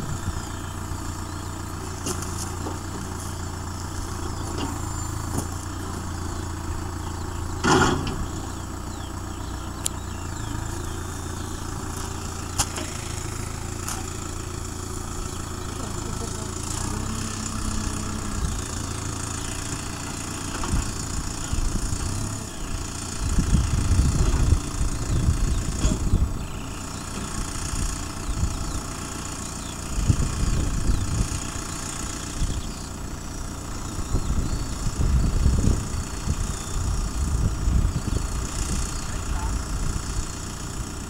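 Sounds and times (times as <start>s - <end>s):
tractor engine running: 0.0s - 41.0s
wind buffeting microphone: 20.6s - 26.6s, 29.9s - 31.5s, 33.8s - 40.2s.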